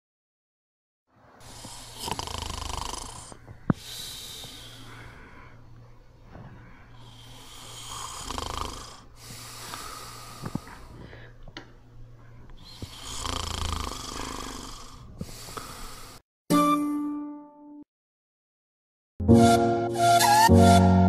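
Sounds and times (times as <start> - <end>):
boy snoring: 1.4 - 5.5, 7.0 - 11.1, 12.6 - 16.2
steady low hum: 3.0 - 16.2.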